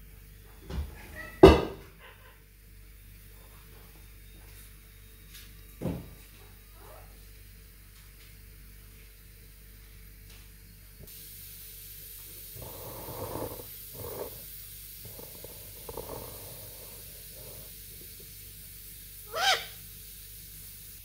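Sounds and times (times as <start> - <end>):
parrot scratchy sounds: 12.4 - 18.4, 19.2 - 19.9
parrot sharp call: 19.3 - 19.8.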